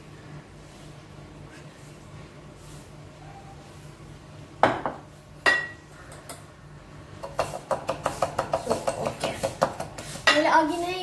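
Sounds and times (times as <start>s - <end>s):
bowls knocking on counter: 4.6s - 5.8s.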